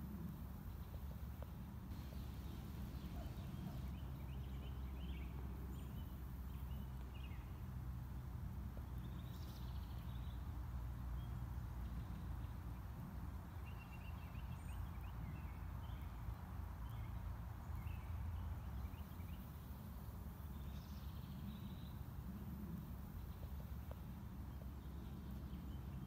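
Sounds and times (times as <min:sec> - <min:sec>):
birds chirping: 0:01.9 - 0:07.5.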